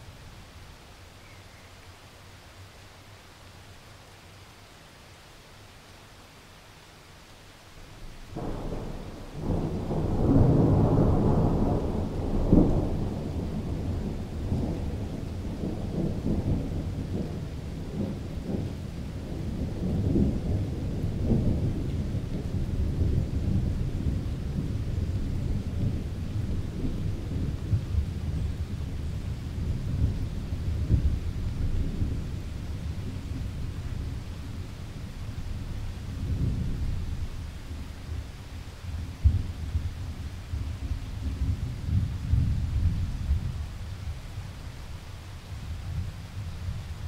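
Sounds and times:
thunderclap with rolling rumble: 8.3 - 44.6.

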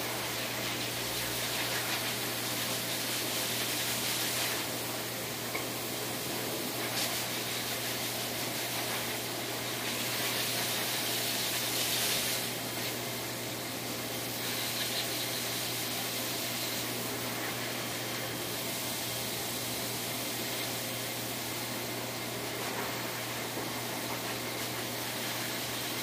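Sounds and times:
blower dryer hissing: 0.0 - 26.0.

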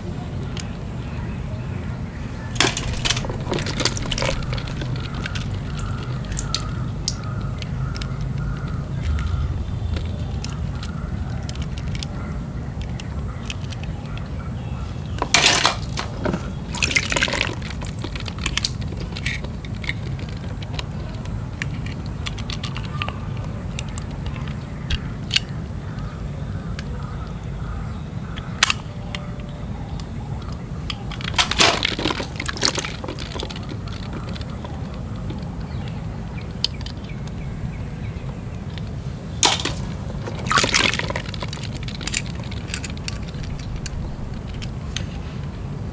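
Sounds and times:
low background rumble: 0.0 - 45.9
plastic balls clattering in tub: 2.5 - 12.1, 15.2 - 25.4, 30.9 - 37.4, 38.6 - 45.2.

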